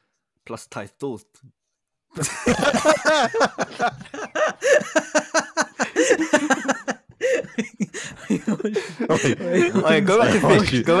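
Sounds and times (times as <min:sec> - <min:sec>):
men laughing: 0:02.2 - 0:10.6.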